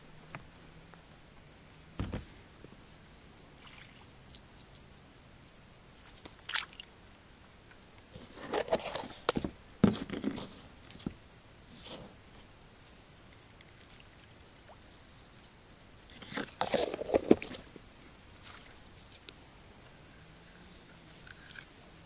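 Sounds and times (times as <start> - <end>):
water splashing and sloshing: 3.5 - 4.8, 6.0 - 7.0, 16.2 - 19.3.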